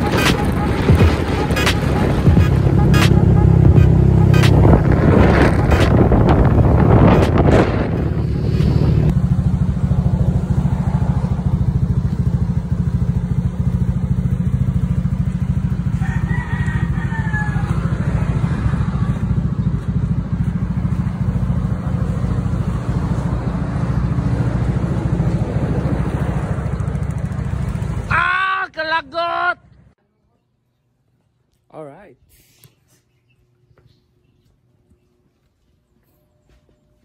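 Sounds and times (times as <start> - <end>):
scooter engine idling: 9.1 - 28.4
rooster crowing: 15.6 - 19.2.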